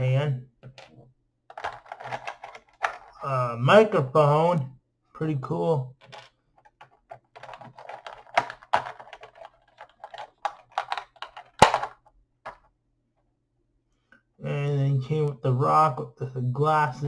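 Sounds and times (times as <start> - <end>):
plastic blister tray crinkling: 1.5 - 3.2, 6.0 - 12.7.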